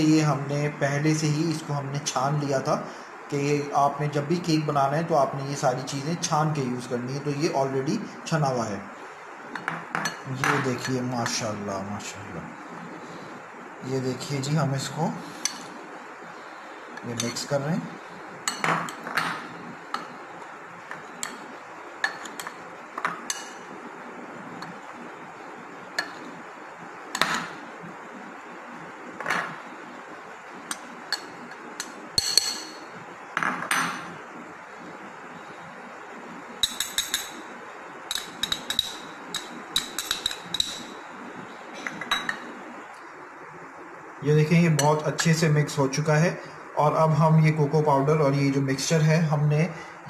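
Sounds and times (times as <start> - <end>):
metal spoon clinking on glass bowl: 30.7 - 32.8, 36.6 - 37.4, 38.1 - 40.9.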